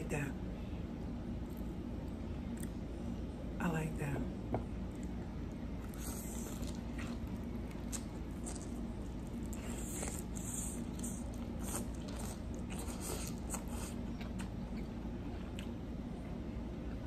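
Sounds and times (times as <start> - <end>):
steady low hum: 0.0 - 17.0
biting and wet chewing: 4.8 - 15.9.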